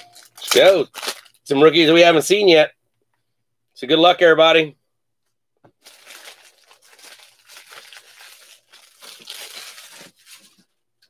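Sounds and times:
wrapper crinkling and tearing: 0:00.0 - 0:01.4, 0:05.8 - 0:10.8
cards rustling: 0:05.8 - 0:10.8.

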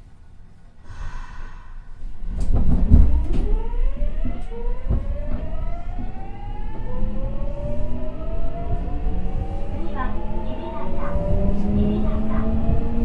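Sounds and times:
low train running rumble: 0:00.0 - 0:13.0.

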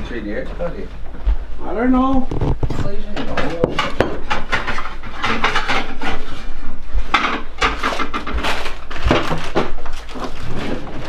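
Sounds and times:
dishes and utensils clattering: 0:02.6 - 0:11.0.

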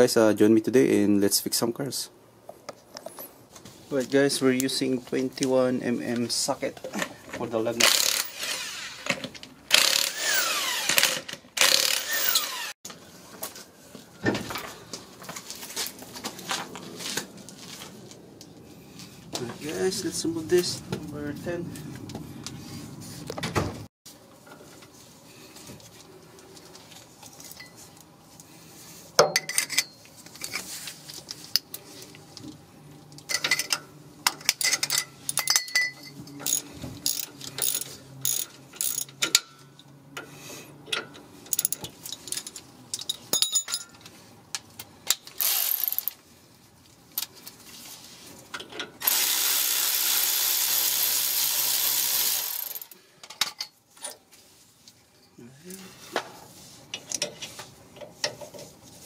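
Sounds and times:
cordless power ratchet running: 0:09.7 - 0:12.7, 0:45.4 - 0:46.1, 0:49.0 - 0:52.9.

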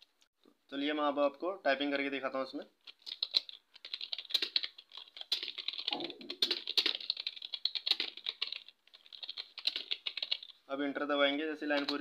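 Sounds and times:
fast typing on keyboard: 0:02.8 - 0:10.6, 0:11.7 - 0:12.0.

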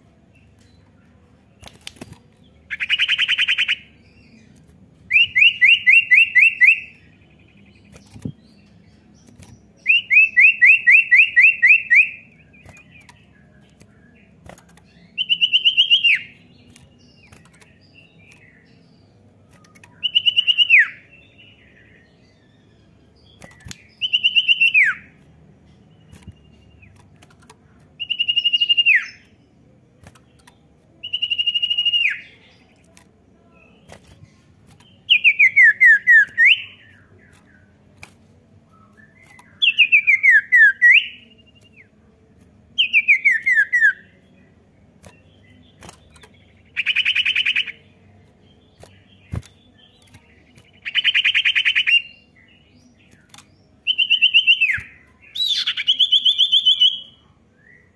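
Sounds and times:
bird singing rapid trills: 0:00.0 - 0:57.9.

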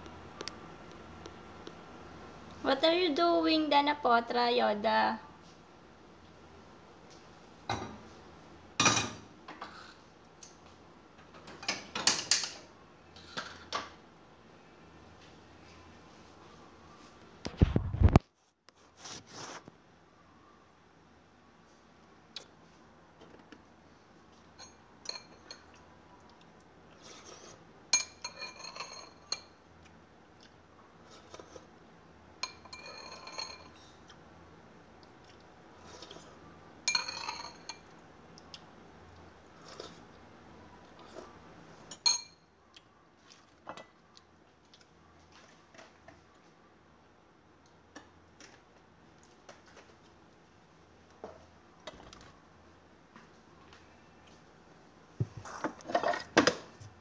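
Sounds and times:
dishes and cutlery clinking: 0:08.8 - 0:09.8, 0:24.5 - 0:25.8, 0:27.2 - 0:29.6, 0:32.4 - 0:33.8, 0:36.9 - 0:37.9, 0:41.9 - 0:42.5.

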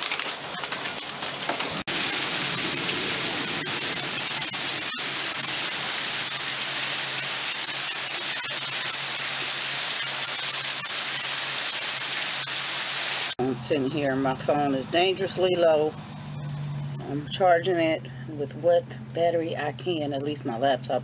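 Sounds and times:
heavy rain pouring: 0:00.0 - 0:13.4.

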